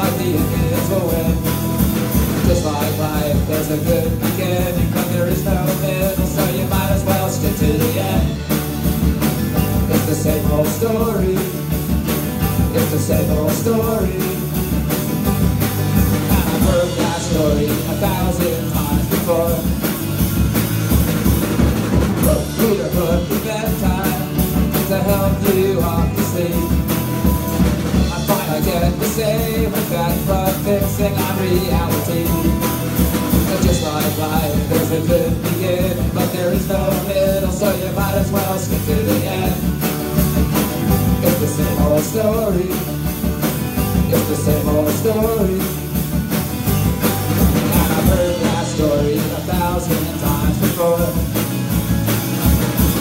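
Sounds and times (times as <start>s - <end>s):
person singing: 0.0s - 1.6s, 2.4s - 8.4s, 9.6s - 11.8s, 12.5s - 14.6s, 16.3s - 19.9s, 22.2s - 27.2s, 27.9s - 32.7s, 33.3s - 39.8s, 40.9s - 43.1s, 43.9s - 46.0s, 47.6s - 51.5s
bass guitar: 0.0s - 53.0s
drum kit: 0.0s - 53.0s
electric guitars: 0.0s - 53.0s.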